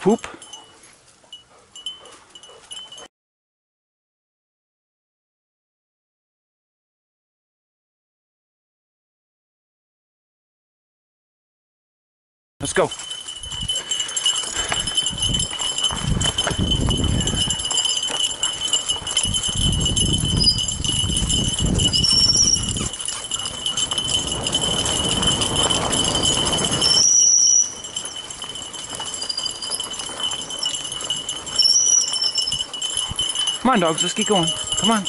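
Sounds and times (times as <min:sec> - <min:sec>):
jingling and rattling: 0:00.0 - 0:03.1, 0:12.6 - 0:35.0
bike tyres rumbling on dirt trail: 0:12.9 - 0:33.6
steady high tone: 0:33.6 - 0:35.0.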